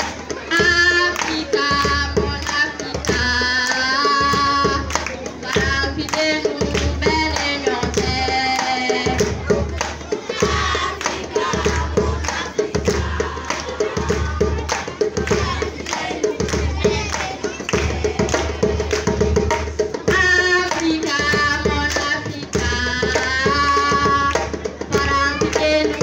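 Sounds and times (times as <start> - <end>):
djembe drums: 0.0 - 26.0
group singing: 0.0 - 26.0.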